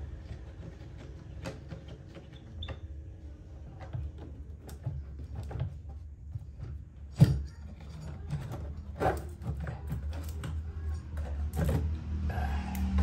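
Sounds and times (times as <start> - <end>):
knocks and scrapes of panel removal: 3.8 - 12.3.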